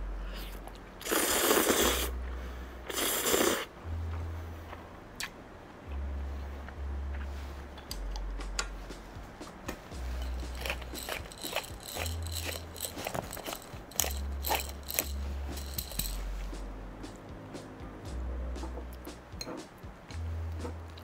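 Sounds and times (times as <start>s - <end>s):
person slurping noodles: 0.4s - 2.1s, 2.9s - 3.7s
light eating clicks: 10.2s - 16.2s.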